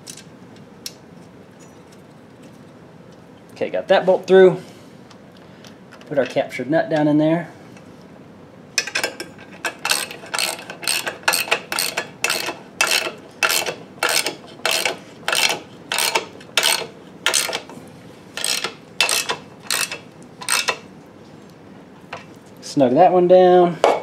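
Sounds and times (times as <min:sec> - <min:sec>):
ratchet wrench clicking: 0:09.8 - 0:17.6, 0:18.4 - 0:20.8.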